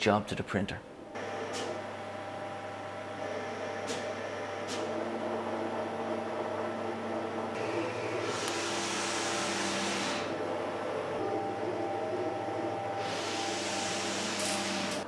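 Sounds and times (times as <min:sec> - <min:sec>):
printer motors whining: 0:01.0 - 0:15.0
printer hiss: 0:07.6 - 0:10.3, 0:12.9 - 0:15.0.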